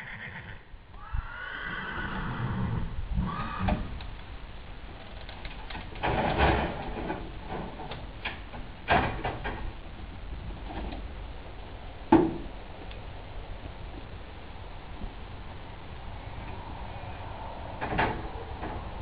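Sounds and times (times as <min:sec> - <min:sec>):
metal panels creaking and rattling: 0:03.4 - 0:12.8, 0:16.3 - 0:19.0.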